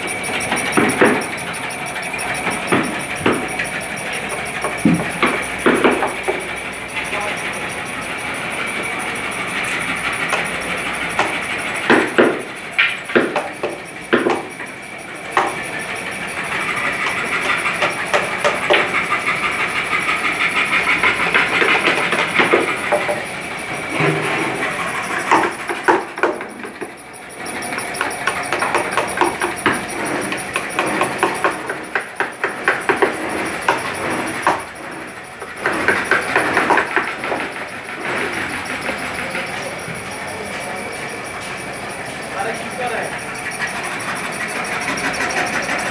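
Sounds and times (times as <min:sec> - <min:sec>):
steady high hum: 0:00.0 - 0:45.9
tools scraping and tapping wood: 0:04.3 - 0:06.6, 0:25.3 - 0:27.0, 0:28.0 - 0:34.7, 0:35.4 - 0:39.0.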